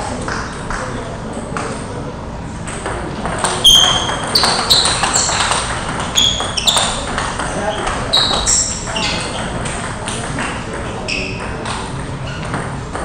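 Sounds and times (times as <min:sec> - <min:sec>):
table tennis balls clicking: 0:02.6 - 0:13.0.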